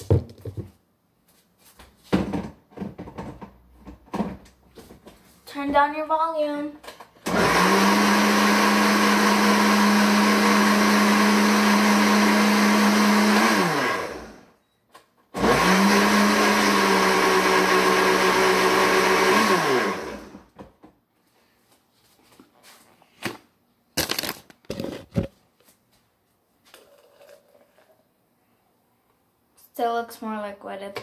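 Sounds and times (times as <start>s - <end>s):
blender motor running: 7.3s - 14.6s, 15.4s - 20.5s.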